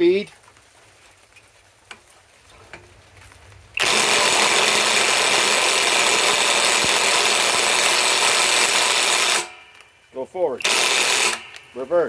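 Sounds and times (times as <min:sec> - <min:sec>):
impact wrench hammering: 0:03.8 - 0:09.8, 0:10.6 - 0:11.9
small clicks: 0:10.6 - 0:11.8.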